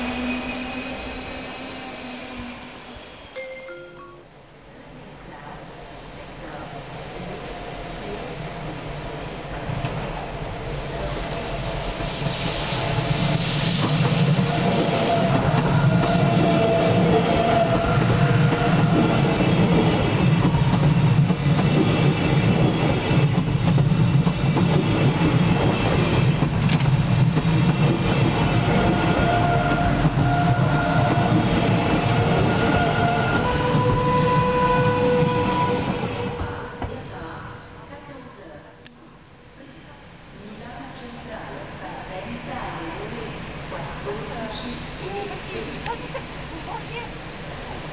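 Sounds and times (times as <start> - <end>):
thin high tones: 0.0 - 4.4
train wheels rumbling: 7.2 - 38.1.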